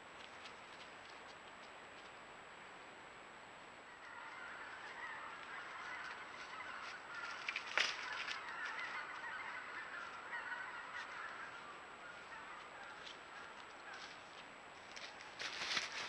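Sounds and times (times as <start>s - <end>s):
flock of geese honking: 3.9s - 16.0s.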